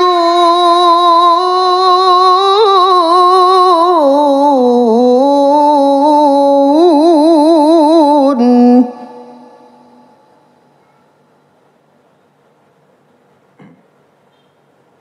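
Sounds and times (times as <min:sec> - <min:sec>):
man reciting melodically: 0:00.0 - 0:10.1.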